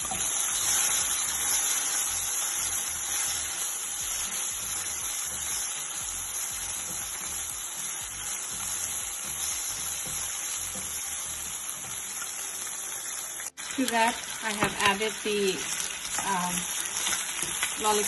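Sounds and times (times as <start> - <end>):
spatula stirring: 0.0 - 12.2
food sizzling in hot oil: 0.0 - 18.0.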